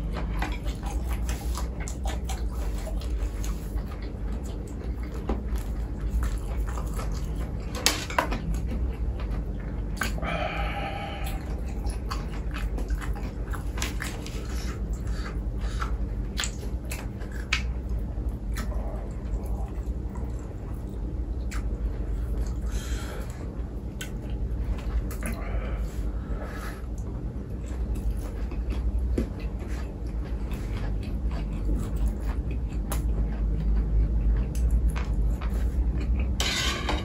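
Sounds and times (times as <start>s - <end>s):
chewing and biting food: 0.0s - 36.4s
low hum: 0.0s - 37.0s
crisp mouth clicks and smacks: 16.3s - 17.9s, 31.4s - 35.6s.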